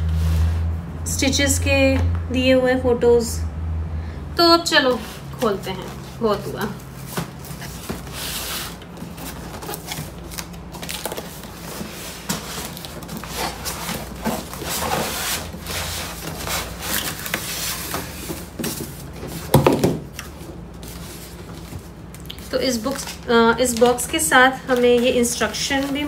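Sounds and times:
cardboard box rustling: 0:05.8 - 0:19.9
box bumping: 0:18.2 - 0:20.1.

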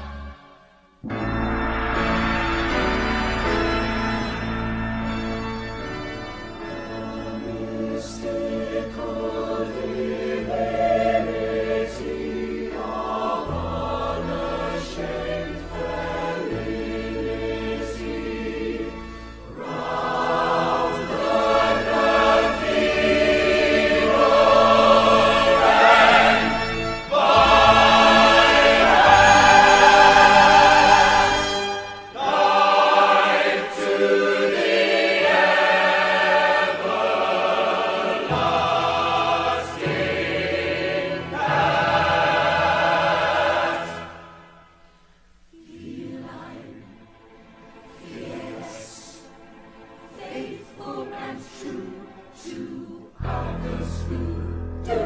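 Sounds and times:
ensemble singing in harmony: 0:05.9 - 0:55.0
instrumental accompaniment: 0:53.2 - 0:55.0.

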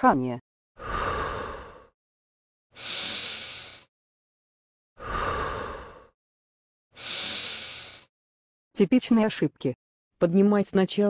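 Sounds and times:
person breathing: 0:00.8 - 0:02.0, 0:02.7 - 0:03.9, 0:05.0 - 0:06.2, 0:06.9 - 0:08.1.

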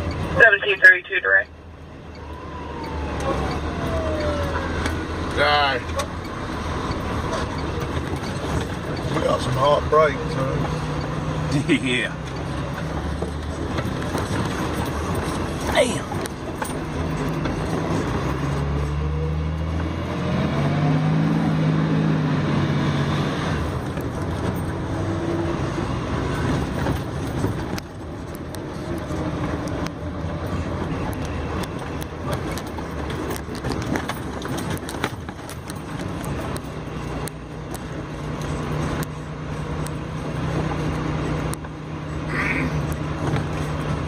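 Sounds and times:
road noise: 0:00.0 - 0:44.0
vehicle engine hum: 0:00.0 - 0:44.0
rattles and knocks: 0:31.6 - 0:39.2.

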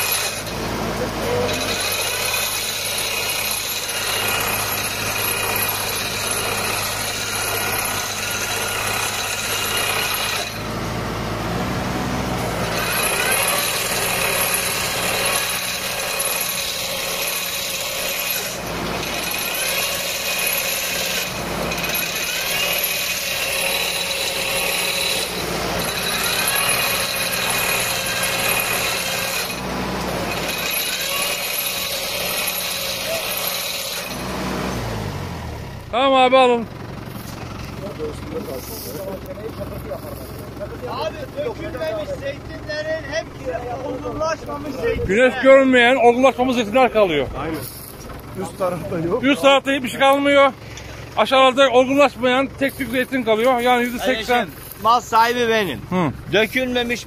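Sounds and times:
tree shaker mechanical rattle and hum: 0:00.0 - 0:57.0
branches rustling: 0:36.8 - 0:40.9, 0:47.4 - 0:48.9, 0:52.5 - 0:57.0.

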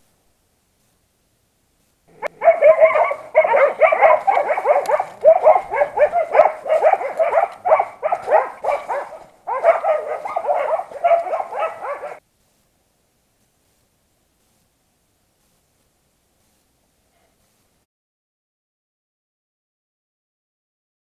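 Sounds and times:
dogs barking: 0:02.1 - 0:12.2.

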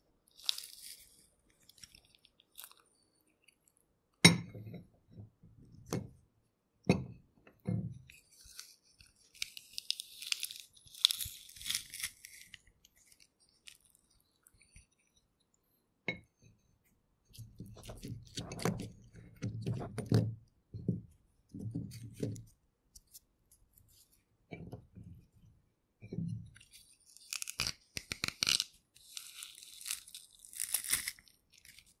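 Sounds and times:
garlic crunching and squishing: 0:00.3 - 0:03.9, 0:08.0 - 0:15.4, 0:26.5 - 0:32.0.

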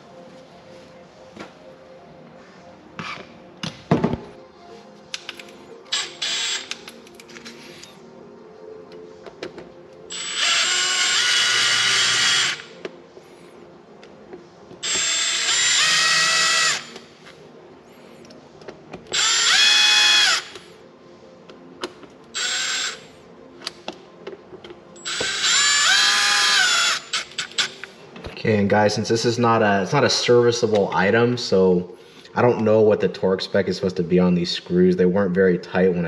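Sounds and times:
electric screwdriver whining: 0:05.9 - 0:07.0, 0:10.1 - 0:12.7, 0:14.8 - 0:17.1, 0:19.1 - 0:20.6, 0:22.3 - 0:23.0, 0:25.0 - 0:27.9.

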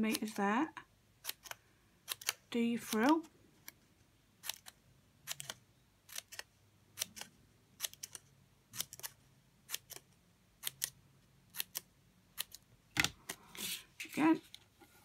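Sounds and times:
scissors snipping paper: 0:01.2 - 0:03.8, 0:04.4 - 0:12.6.

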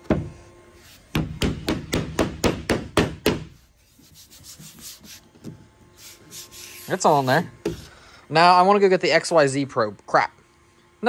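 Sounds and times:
knocks on wooden board: 0:01.1 - 0:03.5.

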